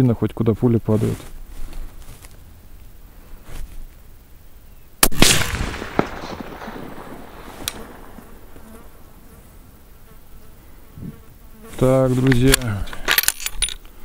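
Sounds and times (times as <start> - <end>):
rifle shot with echo: 5.0 - 9.1
faint sharp tick: 7.6 - 7.8.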